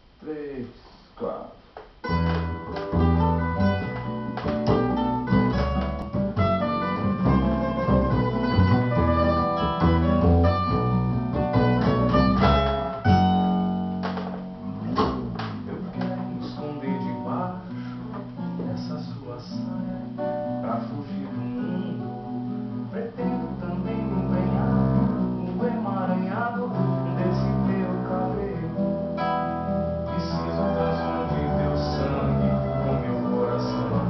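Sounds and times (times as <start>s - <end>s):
acoustic guitars playing: 2.0s - 34.0s
double bass line: 2.0s - 34.0s.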